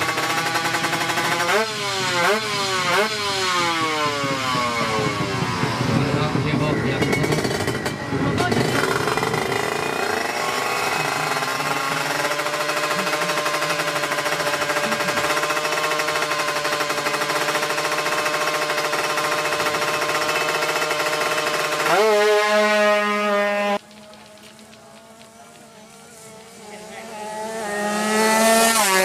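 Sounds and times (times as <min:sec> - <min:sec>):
two-stroke motorcycle revving: 0:00.0 - 0:29.0.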